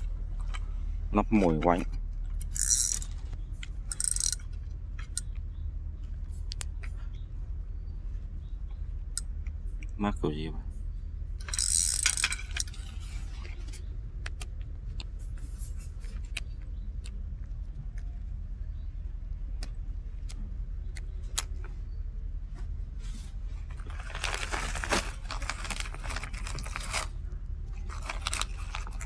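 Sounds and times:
steady low rumble: 0:00.0 - 0:29.0
fishing tackle clicking and jangling: 0:02.4 - 0:03.1, 0:03.9 - 0:04.4, 0:11.4 - 0:12.8.

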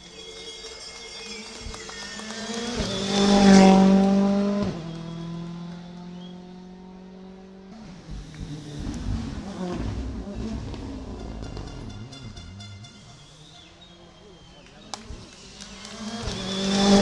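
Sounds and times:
rally car engines revving: 0:00.1 - 0:17.0.

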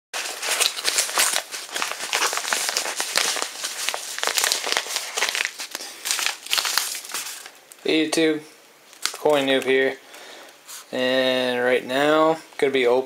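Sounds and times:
padded paper mailer crinkling: 0:00.2 - 0:07.6, 0:08.9 - 0:09.7.

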